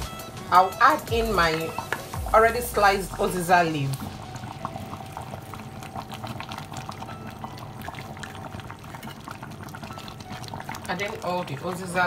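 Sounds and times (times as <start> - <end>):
soup bubbling in a pot: 1.0 - 12.0.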